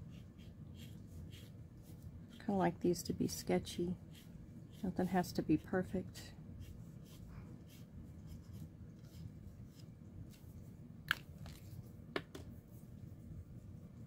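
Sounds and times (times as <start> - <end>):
marker pen scratching on card: 0.1 - 2.4.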